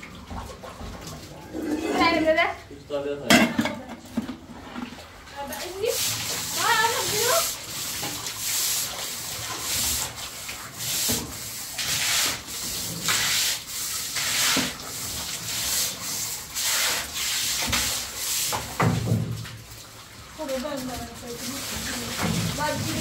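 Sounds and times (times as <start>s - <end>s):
broom scrubbing a wall: 5.6s - 19.4s, 20.4s - 23.0s.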